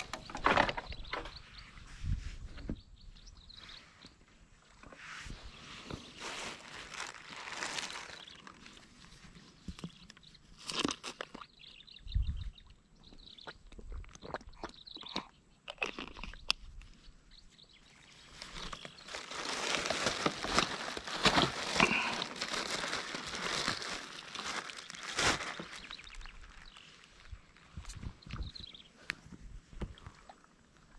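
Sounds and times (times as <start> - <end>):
crunching and crinkling handling noise: 4.6 - 11.5, 18.1 - 30.9.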